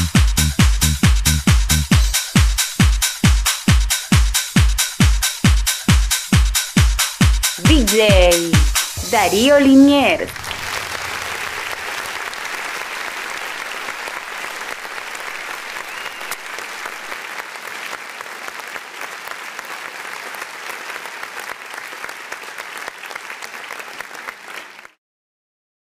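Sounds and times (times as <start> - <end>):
crowd applauding: 9.4 - 25.0.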